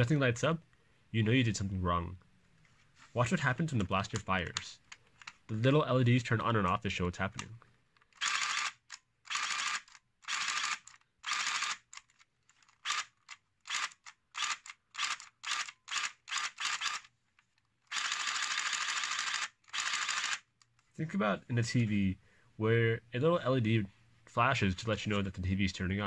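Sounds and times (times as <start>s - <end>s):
toy blaster motors firing: 8.2s - 12.0s, 12.8s - 17.1s, 17.9s - 20.5s.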